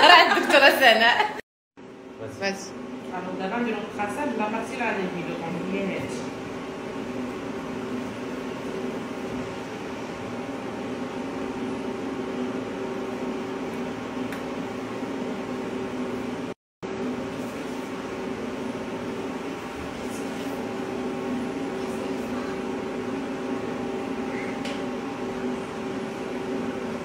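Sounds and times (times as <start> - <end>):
skin treatment machine humming: 0.0 - 27.0.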